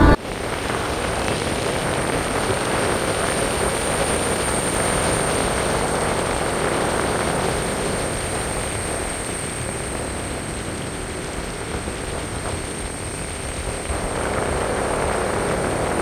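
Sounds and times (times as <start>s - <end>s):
car road and tyre noise: 0.0s - 0.2s.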